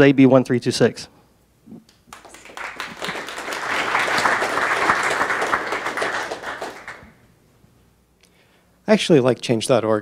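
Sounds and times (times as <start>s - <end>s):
audience applauding: 2.1s - 7.2s.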